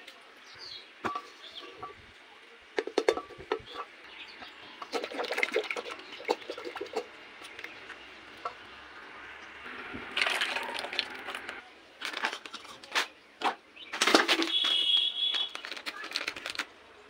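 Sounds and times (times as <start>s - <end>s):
bowls and containers knocking: 2.8s - 3.9s
plastic packet crinkling: 10.1s - 12.9s, 14.4s - 16.8s.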